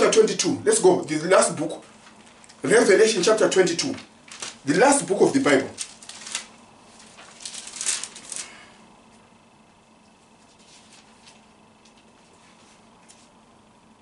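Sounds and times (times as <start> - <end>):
thin pages rustling: 3.9 - 4.7, 5.6 - 8.6, 10.1 - 13.4.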